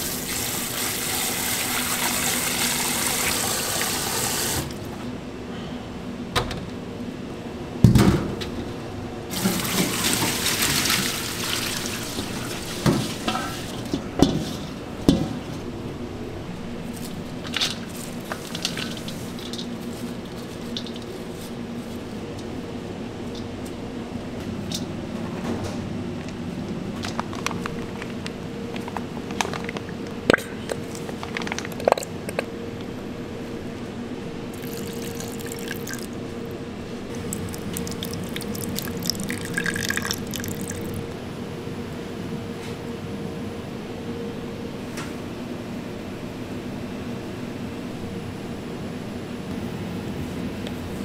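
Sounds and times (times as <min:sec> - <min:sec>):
low steady hum: 0:03.6 - 0:51.0
tap water running into bowl: 0:09.4 - 0:13.6, 0:34.6 - 0:36.2, 0:37.2 - 0:41.0.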